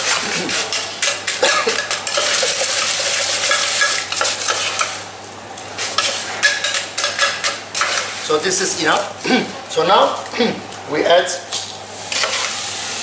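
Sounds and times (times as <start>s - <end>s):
liquid nitrogen hissing: 11.5s - 13.0s.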